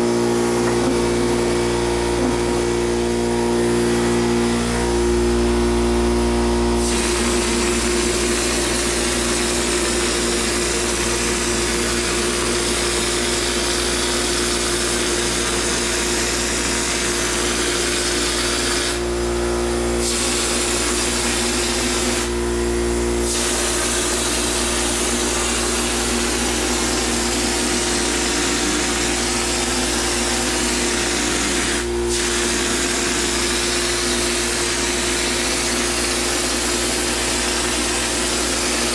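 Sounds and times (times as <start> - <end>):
steady motor hum: 0.0 - 38.9
spray gun air hiss: 6.8 - 19.0, 20.0 - 22.3, 23.3 - 38.9.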